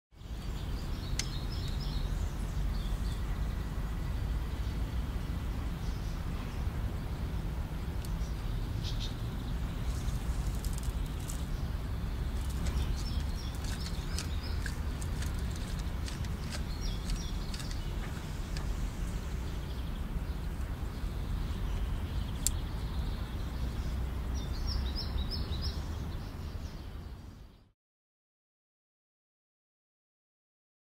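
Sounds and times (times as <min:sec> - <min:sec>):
small birds chirping: 0:00.1 - 0:27.7.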